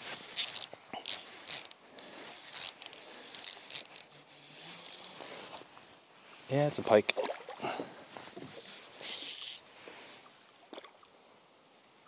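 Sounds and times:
fishing reel clicking and ratcheting: 0.3s - 5.6s, 9.0s - 9.6s.

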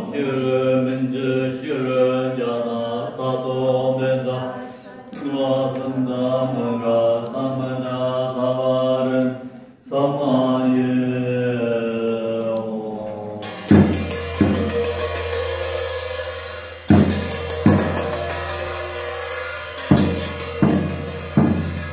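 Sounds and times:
group chanting: 0.0s - 21.9s
frame drum beats: 13.4s - 21.9s
large cymbals ringing: 13.4s - 21.9s.

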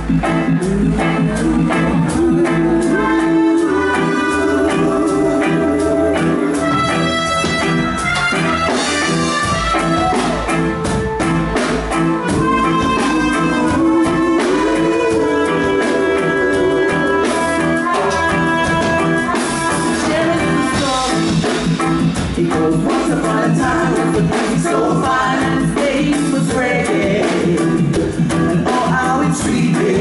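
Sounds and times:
live reggae band with drums: 0.0s - 30.0s
vocal group singing: 0.5s - 6.8s, 12.2s - 17.8s, 19.7s - 30.0s.

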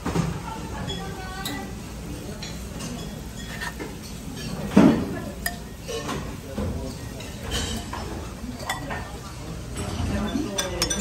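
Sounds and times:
chatter: 0.3s - 11.0s
cutlery clinking on plates: 2.3s - 11.0s.

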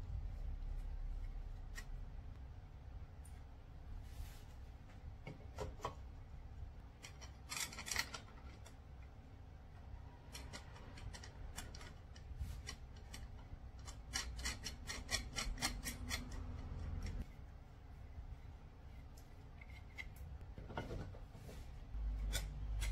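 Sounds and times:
hardware clicks and scrapes: 6.9s - 8.8s, 9.9s - 17.3s, 19.0s - 22.9s.

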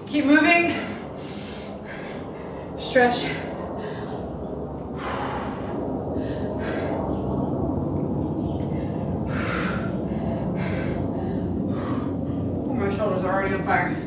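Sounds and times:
low background hum: 0.0s - 14.0s
woman breathing hard: 0.7s - 7.7s, 8.4s - 12.7s.

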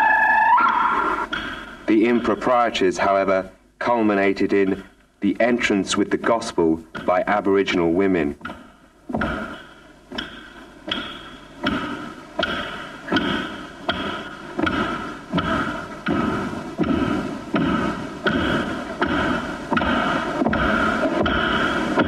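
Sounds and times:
drum beating with echo: 5.7s - 22.0s.

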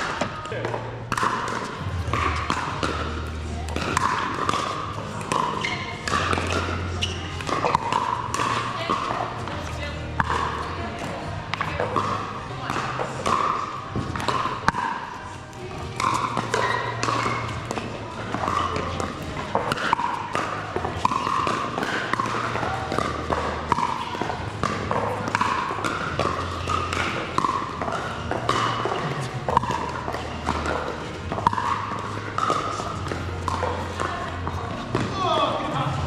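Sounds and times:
paddles hitting plastic ball: 0.0s - 36.0s.

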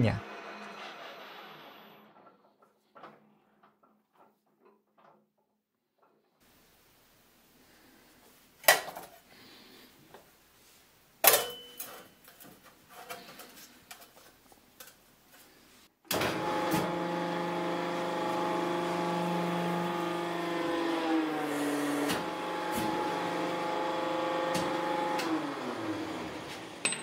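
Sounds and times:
sharp metal clank: 11.2s - 11.9s
hydraulic pump motor humming: 16.1s - 26.8s.

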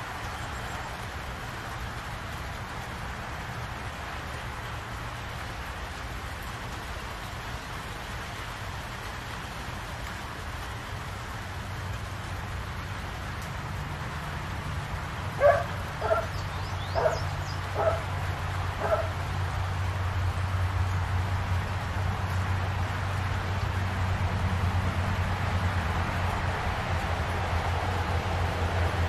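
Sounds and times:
steady rain falling: 0.0s - 29.0s
dog barking: 15.4s - 18.1s, 18.8s - 19.2s.

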